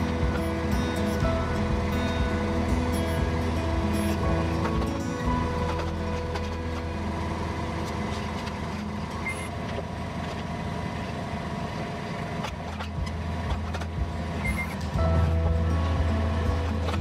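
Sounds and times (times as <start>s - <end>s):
scissor lift engine running: 0.0s - 17.0s.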